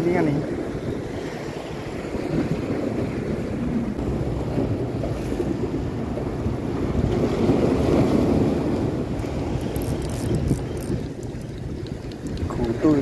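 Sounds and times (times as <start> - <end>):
waves breaking against rocks: 0.0 - 13.0
wind buffeting microphone: 0.0 - 13.0.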